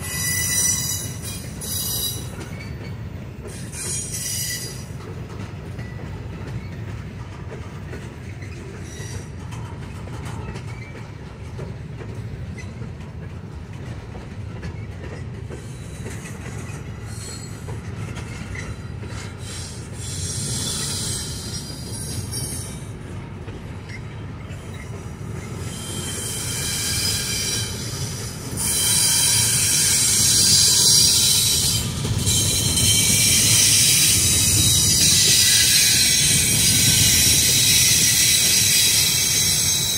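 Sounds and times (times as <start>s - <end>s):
high-pitched wheel squeal: 0.0s - 2.7s, 3.6s - 4.8s, 17.1s - 17.6s, 18.5s - 22.8s, 24.6s - 39.9s
train wheels rumbling on rail: 0.0s - 39.9s
wheels clickety-clack: 0.3s - 39.9s.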